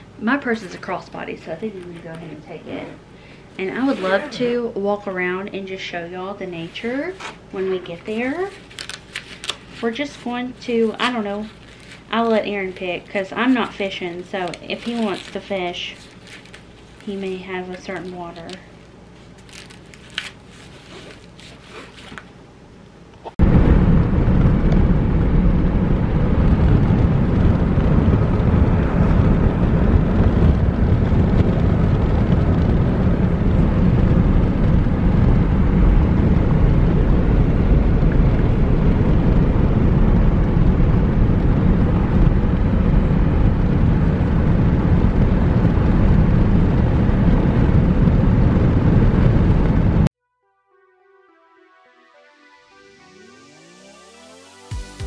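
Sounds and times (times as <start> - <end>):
road and wind noise in car: 23.4 - 50.1.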